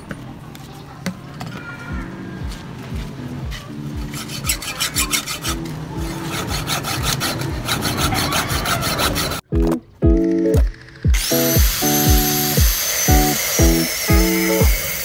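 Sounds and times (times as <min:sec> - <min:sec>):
hacksaw cutting tube: 0:04.0 - 0:09.4, 0:11.2 - 0:15.0.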